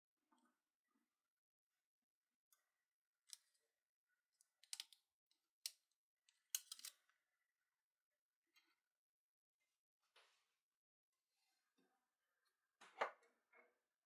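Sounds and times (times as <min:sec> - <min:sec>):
faint clicks and rustles of handling: 0:02.5 - 0:07.3.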